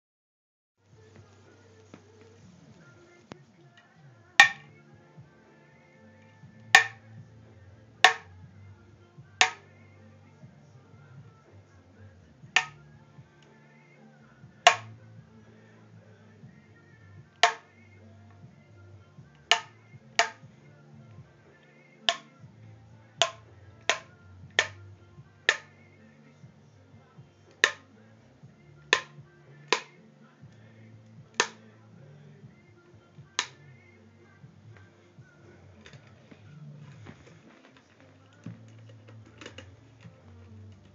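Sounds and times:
racket strings snapping: 4.4s - 4.7s
racket strings snapping with ping: 4.4s - 4.8s, 6.7s - 7.0s, 8.0s - 8.3s, 9.4s - 9.6s, 12.6s - 12.8s, 14.7s - 15.0s, 17.4s - 17.7s, 19.5s - 20.4s, 22.1s - 22.3s, 23.2s - 24.8s, 25.5s - 25.7s, 27.6s - 27.9s, 28.9s - 30.0s, 31.4s - 31.6s, 33.4s - 33.6s.

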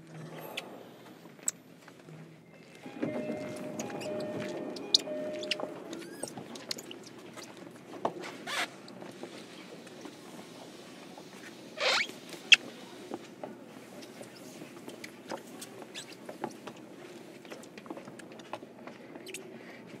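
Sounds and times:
low steady train hum: 2.9s - 6.0s.

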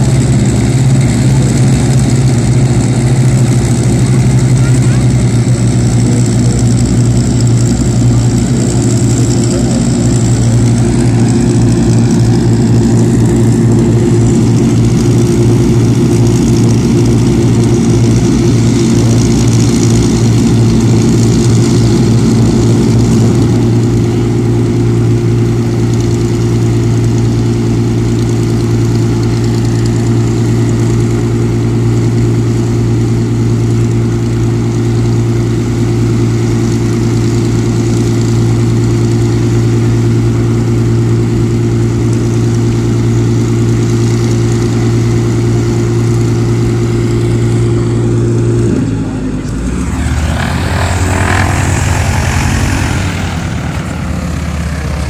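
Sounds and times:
radial engine and propeller running: 0.0s - 55.0s.

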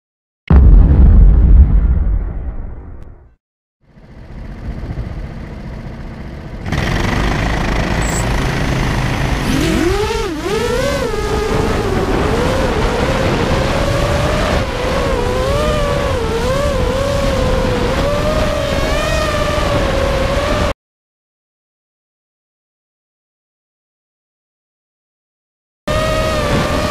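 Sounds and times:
drone motors whining: 4.2s - 20.7s, 25.9s - 26.9s.

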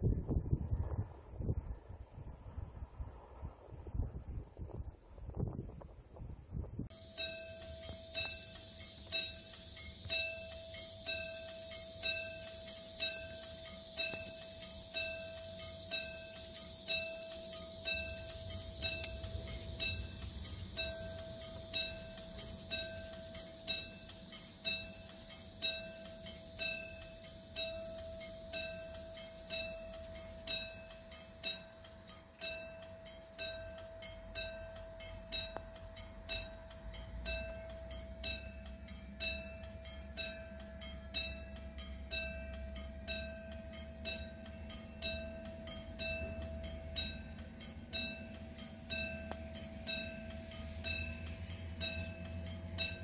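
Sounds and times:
low rumble: 0.0s - 10.4s, 17.8s - 24.8s
level crossing warning bell: 6.9s - 53.0s.

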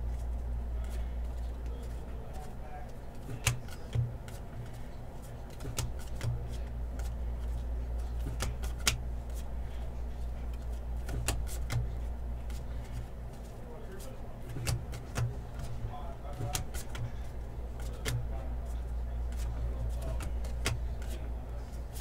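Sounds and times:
cards clicking on table: 3.2s - 4.8s, 5.5s - 9.4s, 11.0s - 13.0s, 14.5s - 15.7s, 16.4s - 17.2s, 17.8s - 18.3s, 19.3s - 21.2s.

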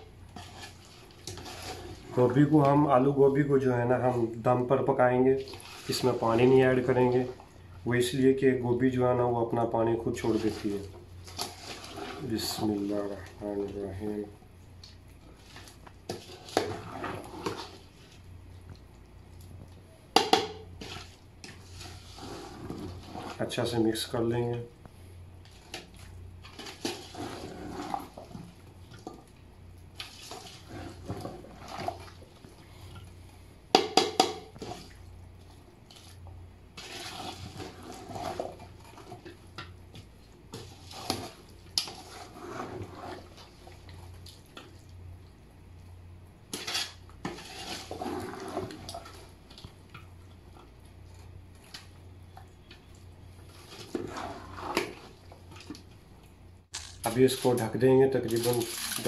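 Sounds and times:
metal ladle scraping a pot: 15.6s - 17.8s, 20.8s - 23.6s, 26.5s - 28.4s, 30.1s - 32.1s, 36.7s - 39.3s, 40.5s - 43.5s, 46.5s - 49.3s, 53.5s - 55.7s.

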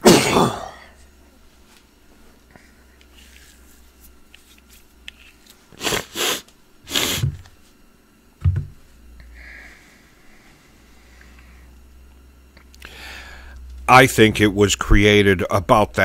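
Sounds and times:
man coughing: 0.0s - 1.0s.

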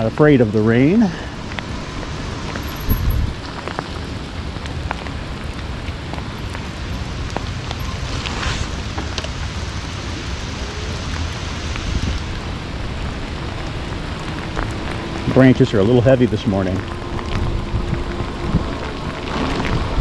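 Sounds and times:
rain hissing: 0.0s - 20.0s
wind rumbling on microphone: 0.0s - 20.0s.

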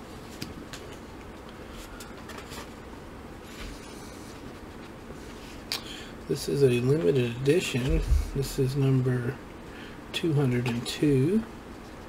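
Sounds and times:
steady low hiss: 0.0s - 12.0s
book pages rustling: 1.8s - 2.8s.

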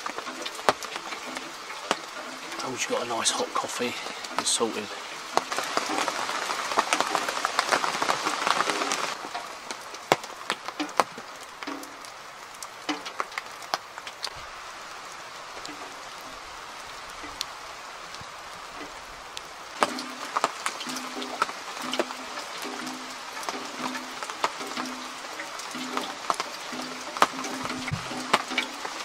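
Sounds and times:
drips tapping: 0.0s - 14.4s, 18.1s - 29.0s
rain falling in woodland: 0.0s - 29.0s.

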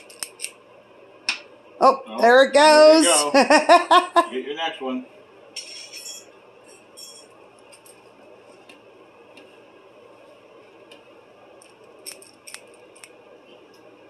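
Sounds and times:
metal scoop scraping a steel bowl: 5.6s - 6.2s.

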